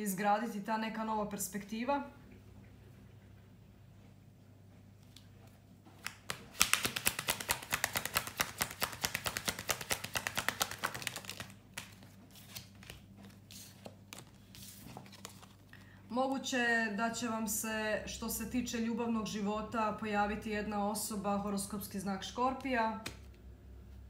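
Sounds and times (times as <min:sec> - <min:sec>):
cards being shuffled: 0:05.9 - 0:15.8.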